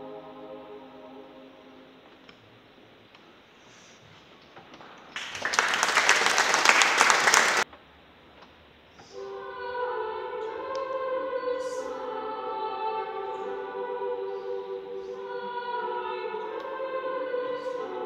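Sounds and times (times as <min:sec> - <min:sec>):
children's choir singing: 0:00.0 - 0:01.9, 0:09.0 - 0:18.0
loud crackling noise: 0:05.2 - 0:07.6.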